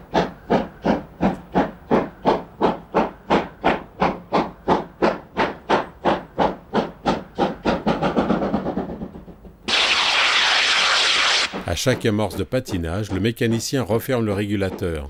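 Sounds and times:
steam locomotive exhaust beats: 0.0s - 15.0s
steam hissing from safety valves: 9.7s - 11.7s.

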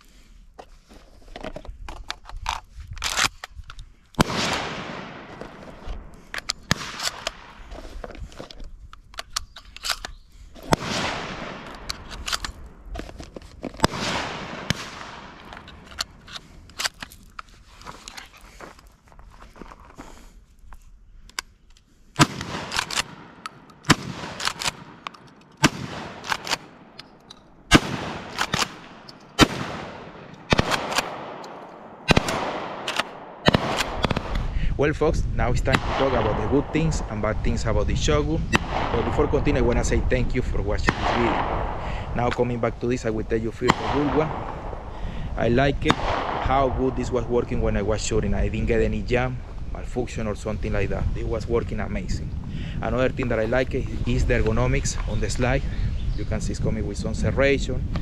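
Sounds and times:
shotgun firing: 4.2s - 5.4s, 6.7s - 7.6s, 10.6s - 12.2s, 13.8s - 15.5s, 22.2s - 25.0s, 25.6s - 27.0s, 27.7s - 34.4s, 38.6s - 39.4s, 40.9s - 41.8s, 43.7s - 44.8s, 45.9s - 46.9s
shotgun pump action: 6.3s - 7.6s, 9.0s - 12.7s, 22.2s - 34.5s.

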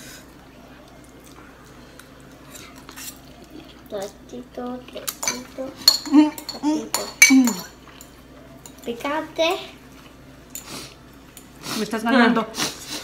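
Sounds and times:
forks clinking against bowls: 5.1s - 8.9s.

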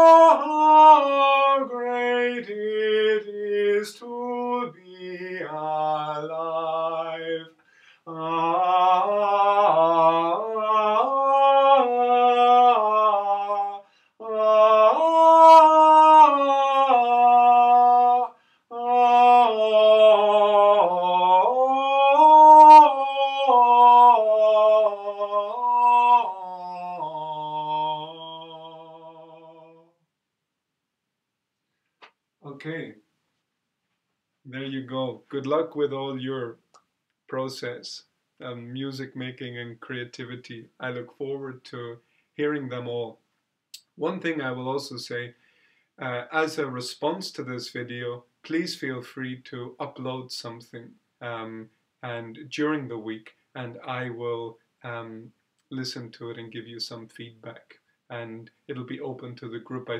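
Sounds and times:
man singing unaccompanied: 0.0s - 30.0s.

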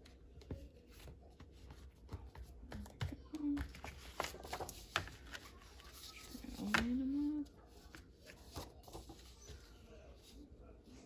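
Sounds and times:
paper pages rustling: 0.9s - 9.7s.

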